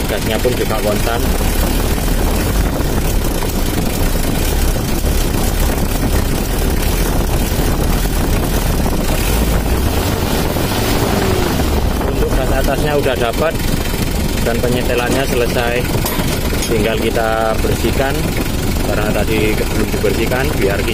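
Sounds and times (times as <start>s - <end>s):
diesel engine running: 0.0s - 20.9s.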